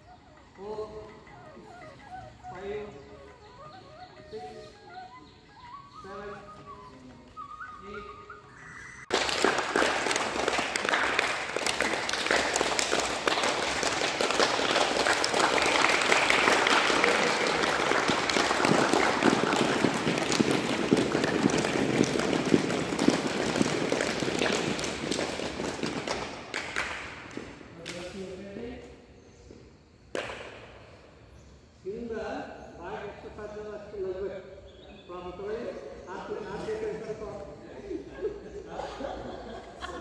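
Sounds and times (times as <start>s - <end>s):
crowd applauding: 9.1s - 28.1s.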